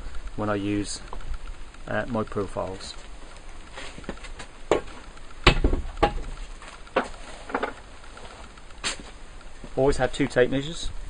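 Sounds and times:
heavy thump: 4.7s - 6.4s
tools knocking on a workbench: 5.5s - 6.4s.

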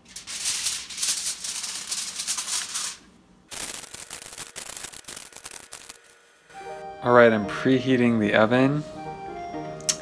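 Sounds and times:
aluminium foil crinkling: 0.0s - 6.0s.

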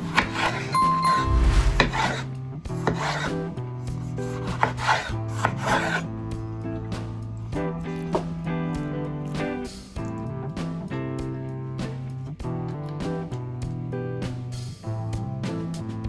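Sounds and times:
soft background music: 0.0s - 16.0s
short bright chime: 0.8s - 2.1s
blade scraping wooden board: 1.7s - 3.4s, 4.2s - 6.0s
knife slicing tomatoes: 4.0s - 6.1s.

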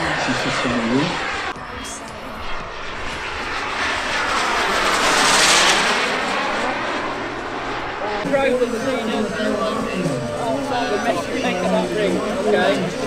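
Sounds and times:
model aircraft engines passing: 0.0s - 13.0s.

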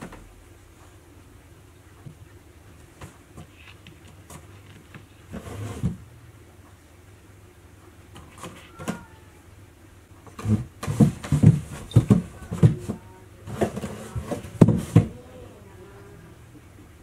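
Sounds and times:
cardboard box scraping on wooden floor: 5.3s - 6.0s, 10.3s - 15.2s.

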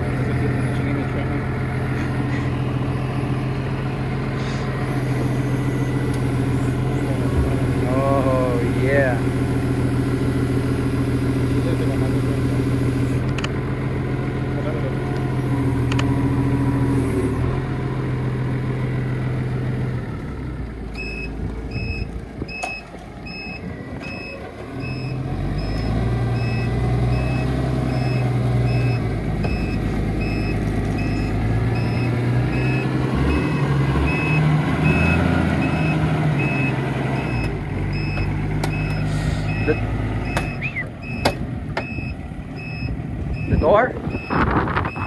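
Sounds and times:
engine running: 0.0s - 45.0s
vehicle reversing alarm beeping: 1.9s - 8.8s, 20.9s - 45.0s.

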